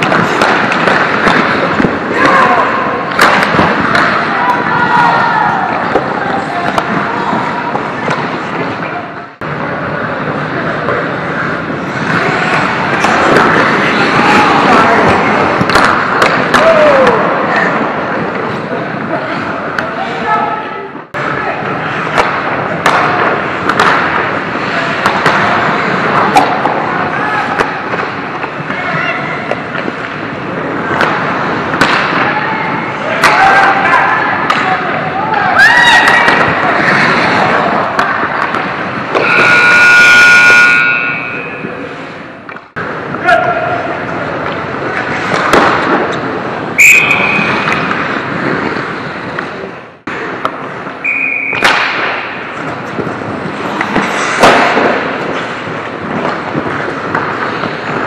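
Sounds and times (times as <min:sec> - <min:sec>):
hockey sticks and puck clacking: 0:00.0 - 0:20.4, 0:21.1 - 0:58.0
skates scraping on ice: 0:00.0 - 0:20.4, 0:21.2 - 0:58.0
referee's whistle blast: 0:39.2 - 0:41.6, 0:46.8 - 0:47.6, 0:51.0 - 0:51.7.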